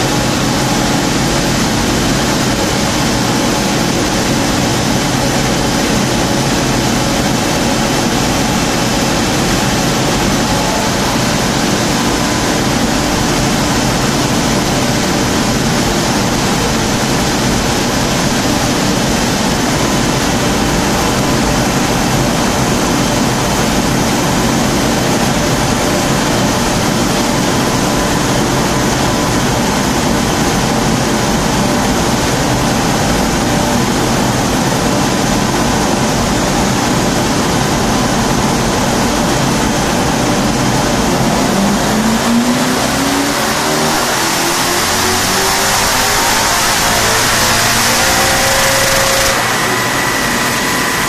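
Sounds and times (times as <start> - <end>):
car engine revving on dynamometer: 0.0 - 51.0.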